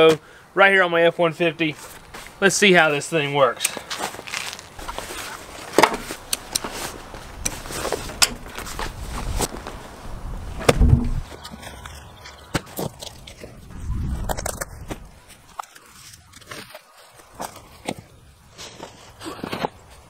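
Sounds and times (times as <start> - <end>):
fabric rustling and scraping: 3.8 - 9.9
heavy thump: 10.6 - 11.2.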